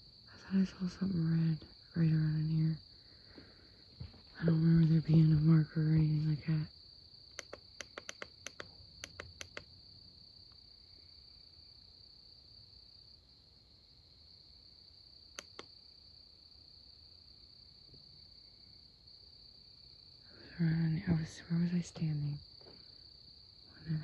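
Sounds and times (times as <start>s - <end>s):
crickets trilling: 0.0s - 24.0s
sharp clicks: 7.3s - 9.7s, 15.4s - 15.7s.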